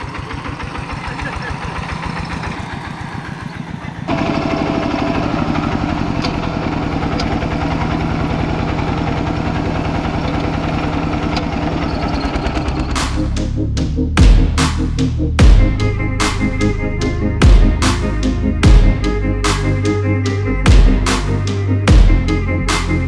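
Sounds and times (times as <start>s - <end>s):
diesel engine chugging: 0.0s - 23.0s
electronic music with heavy beats: 12.3s - 23.0s.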